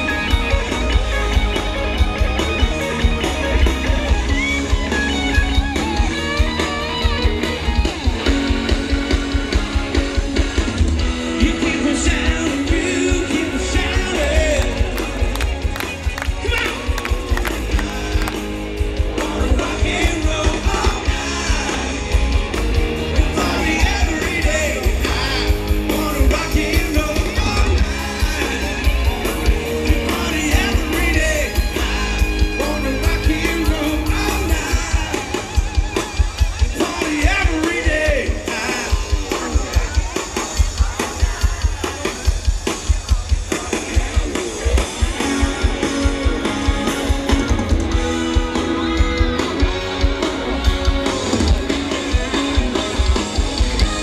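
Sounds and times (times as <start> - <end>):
drums: 0.0 - 54.0
electric guitar: 0.0 - 54.0
man singing: 11.2 - 15.4, 17.4 - 22.2, 23.1 - 35.7, 36.7 - 39.7.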